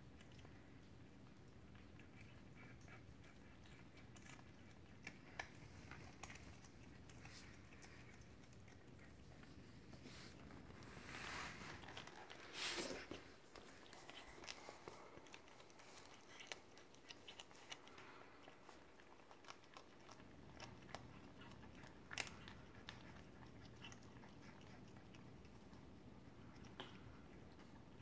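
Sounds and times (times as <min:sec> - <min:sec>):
kitten chewing and crunching: 0:00.0 - 0:28.0
rustle: 0:02.2 - 0:19.9.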